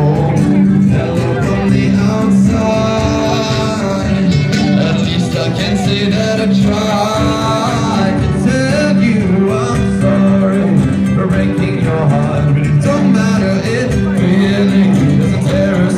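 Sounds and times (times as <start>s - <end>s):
music with guitar and singing: 0.0s - 15.9s.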